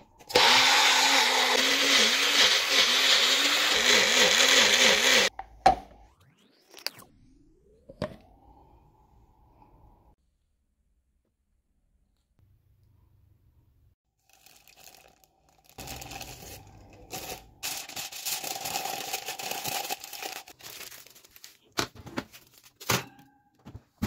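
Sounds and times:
aluminum foil crinkling and tearing: 0:14.2 - 0:22.9.

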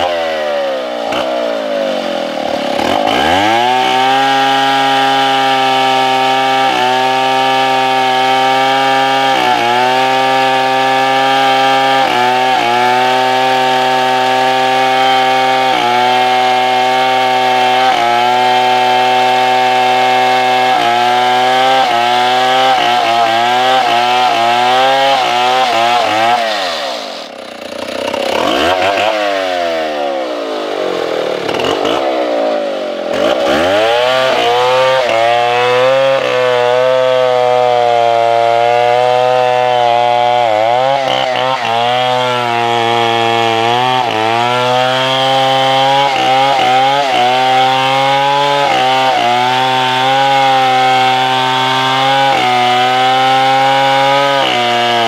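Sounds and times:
chainsaw sawing tree trunk: 0:00.0 - 0:55.0.

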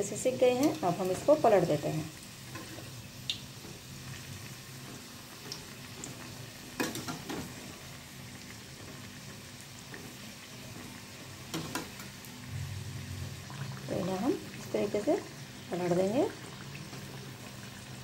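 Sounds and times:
deep-frying sizzle: 0:00.0 - 0:18.0
metal turner clinking on pan: 0:06.8 - 0:07.5.

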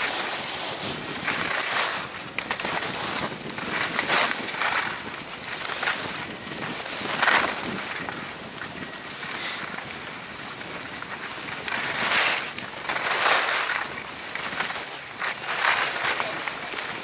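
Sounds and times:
wind rushing over microphone: 0:00.0 - 0:13.0
skis scraping over snow: 0:00.0 - 0:17.0.

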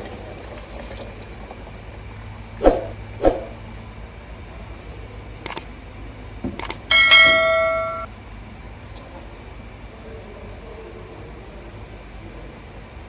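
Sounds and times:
metal object clanging and ringing: 0:06.9 - 0:08.1.

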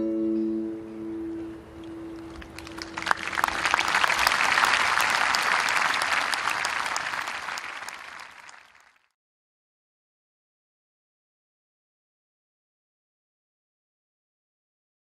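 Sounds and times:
audience applauding: 0:02.2 - 0:09.1.

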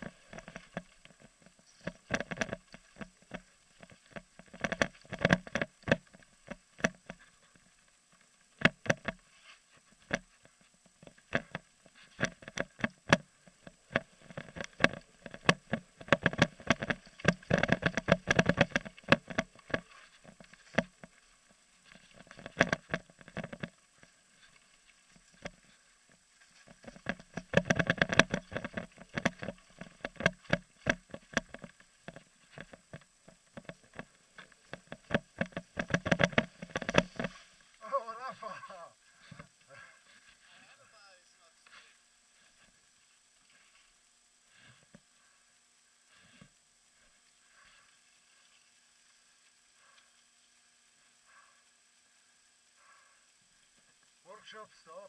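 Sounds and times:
mountain bike clattering: 0:12.2 - 0:21.1.

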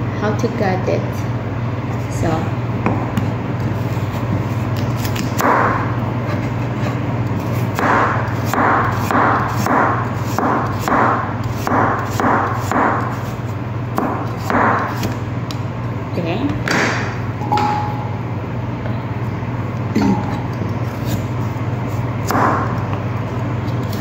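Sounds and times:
steady low hum: 0:00.0 - 0:24.0
knife chopping carrots on board: 0:07.7 - 0:13.3, 0:14.0 - 0:15.2, 0:22.2 - 0:22.9.

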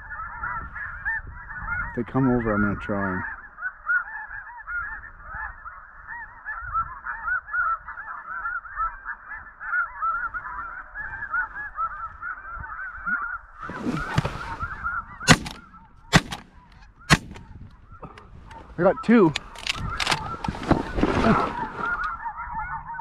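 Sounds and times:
geese honking: 0:00.1 - 0:23.0
shotgun shots: 0:15.2 - 0:17.5
brief rustle: 0:19.3 - 0:22.2.

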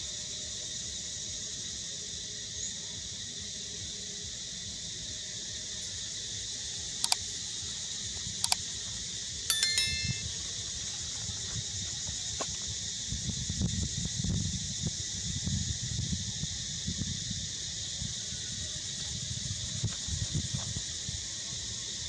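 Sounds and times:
forest insects droning: 0:00.0 - 0:09.0, 0:11.9 - 0:22.0
short bell-like chime: 0:09.5 - 0:10.3.

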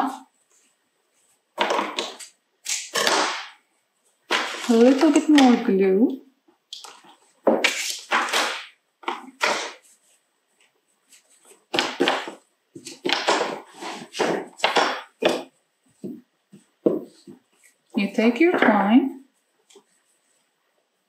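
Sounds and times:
dry fibres rustling and crackling: 0:04.3 - 0:05.7.

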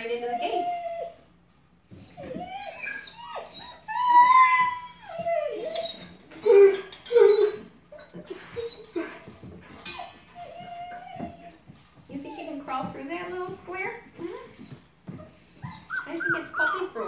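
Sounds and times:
puppies whining and yipping: 0:00.2 - 0:17.0
puppy yelps: 0:02.0 - 0:08.9, 0:15.5 - 0:17.0.

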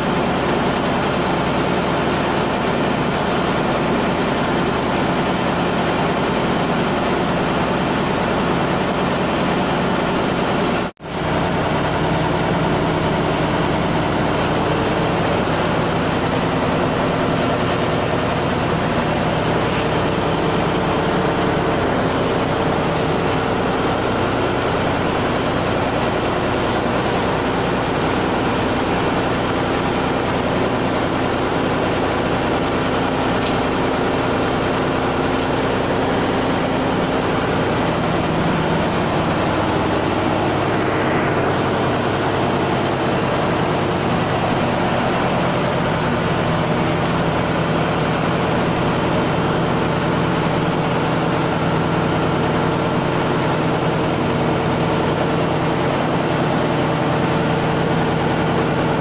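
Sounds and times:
engine room machinery drone: 0:00.0 - 0:59.0.

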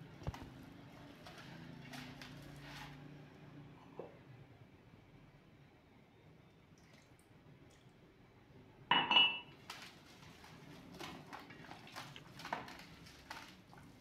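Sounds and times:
hands mixing fish in marinade: 0:00.0 - 0:03.2, 0:09.5 - 0:14.0.

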